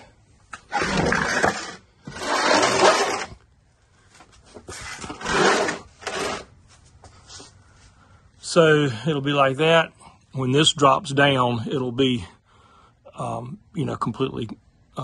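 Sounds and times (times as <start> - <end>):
wood scraping on concrete floor: 0.5 - 3.4, 4.1 - 6.8.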